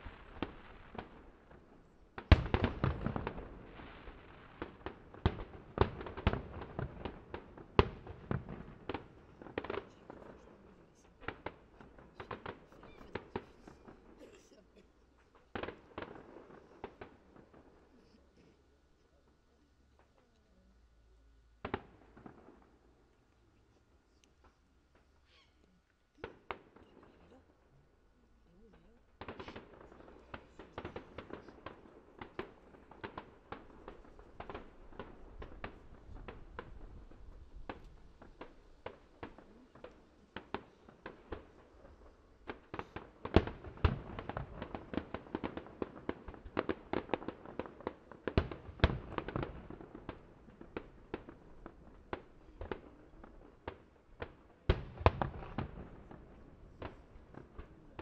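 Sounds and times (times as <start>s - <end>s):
fireworks bursting: 0.0s - 20.2s, 21.0s - 25.6s, 26.2s - 58.0s
fireworks crackling: 0.0s - 25.5s, 26.1s - 58.0s.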